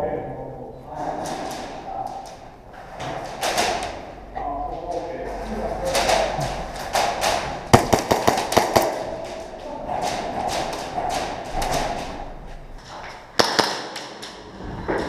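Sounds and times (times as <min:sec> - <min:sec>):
airsoft pistol shots: 0:07.7 - 0:09.2, 0:13.4 - 0:14.2.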